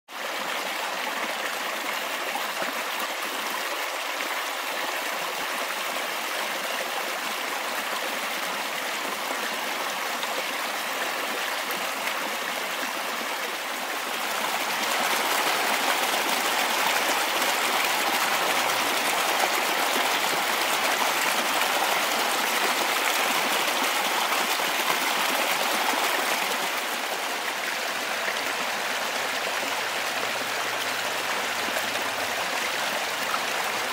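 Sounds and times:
stream running over stones: 0:00.2 - 0:33.9.

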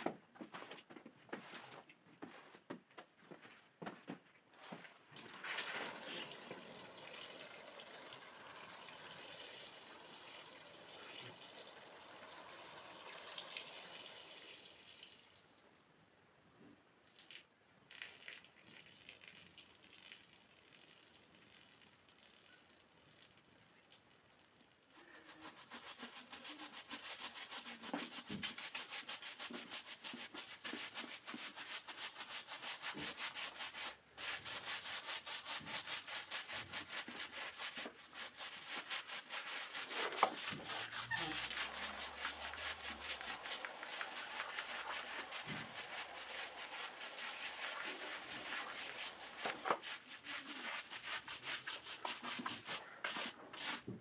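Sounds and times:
push broom scrubbing wet rug: 0:25.3 - 0:53.9.

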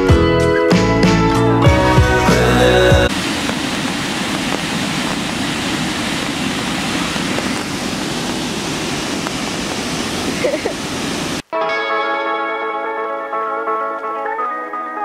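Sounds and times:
background music: 0:00.0 - 0:03.1, 0:11.6 - 0:15.0
waterfall rushing: 0:01.8 - 0:11.4.

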